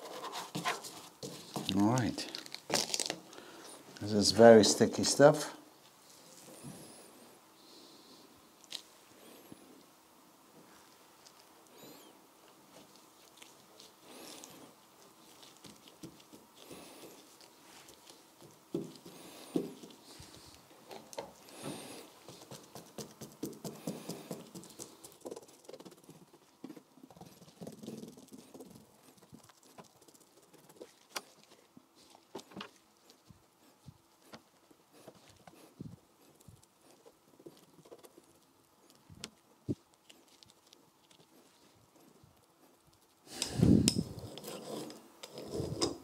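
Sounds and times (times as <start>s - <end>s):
brush dabbing resin: 12.7s - 43.4s.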